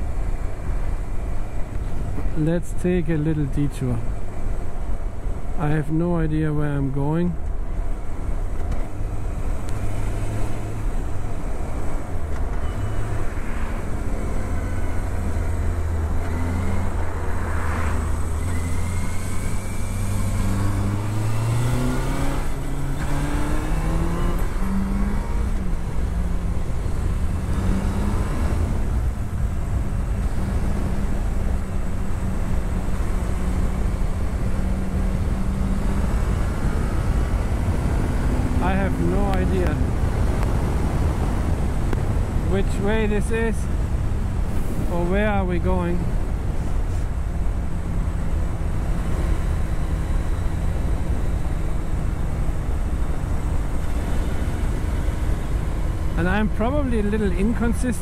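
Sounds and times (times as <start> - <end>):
motorcycle engine accelerating: 14.2 - 43.0.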